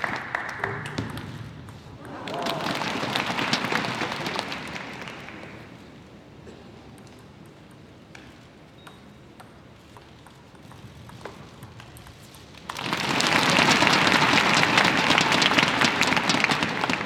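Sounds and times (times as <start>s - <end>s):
crowd applause: 0.0s - 1.1s, 2.0s - 5.8s, 12.7s - 17.0s.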